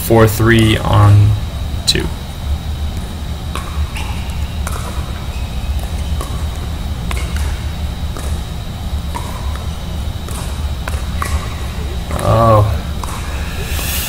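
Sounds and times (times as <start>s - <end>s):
steady low hum: 0.0s - 14.0s
plastic ball popping off paddles: 3.0s - 12.2s.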